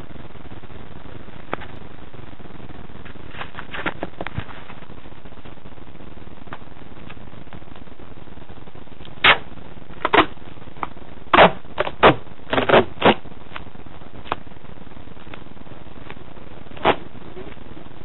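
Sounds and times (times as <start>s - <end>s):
steady hiss: 0.0s - 18.0s
duct tape ripping: 9.1s - 10.3s, 11.3s - 13.6s.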